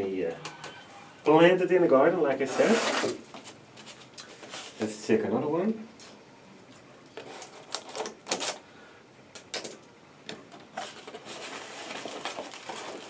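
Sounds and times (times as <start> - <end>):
cardboard scraping and rustling: 2.4 - 4.8, 10.7 - 13.0.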